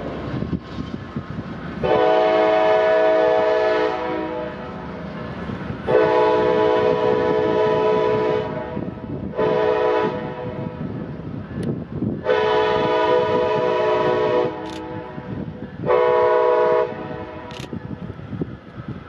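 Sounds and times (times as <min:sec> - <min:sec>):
train cars rumbling over rails: 0:00.0 - 0:19.0
train air horn blasts: 0:01.8 - 0:04.7, 0:05.9 - 0:10.9, 0:12.2 - 0:17.7.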